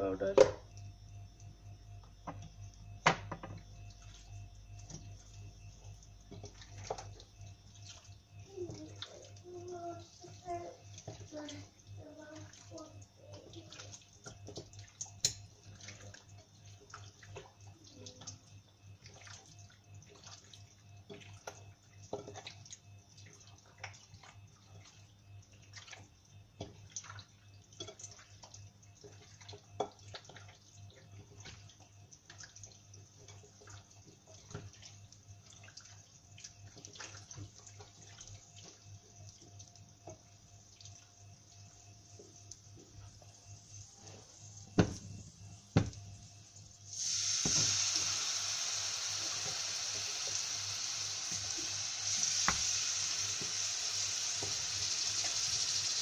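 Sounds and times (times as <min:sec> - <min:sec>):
low steady hum: 0:00.0 - 0:55.3
oil crackling and popping: 0:46.9 - 0:56.0.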